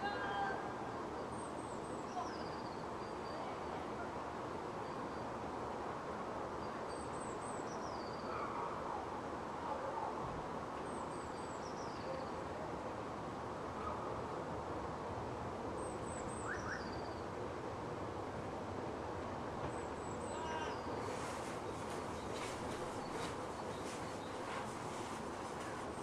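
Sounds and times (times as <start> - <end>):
distant city hum: 0.0 - 26.0
songbird trilling: 16.3 - 17.1.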